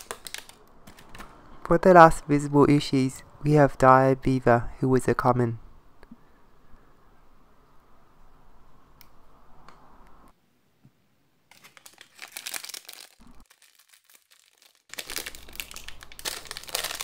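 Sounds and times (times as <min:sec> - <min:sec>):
foil bag crinkling: 0:00.0 - 0:01.2, 0:11.5 - 0:17.0.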